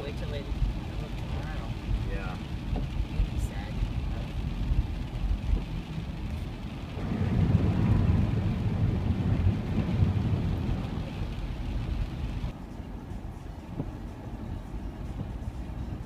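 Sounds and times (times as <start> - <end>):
tyres rushing through water: 0.0 - 12.5
water spraying against car: 0.0 - 12.6.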